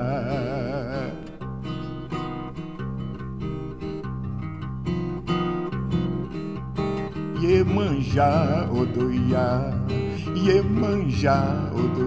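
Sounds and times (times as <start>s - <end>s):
acoustic guitars plucking chords: 0.0s - 12.0s.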